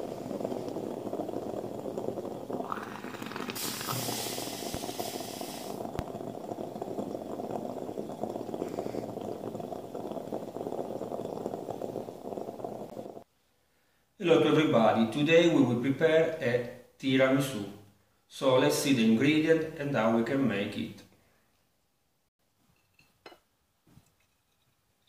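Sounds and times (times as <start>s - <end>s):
moka pot bubbling and sputtering: 0.0s - 13.3s
loud hiss: 2.6s - 6.0s.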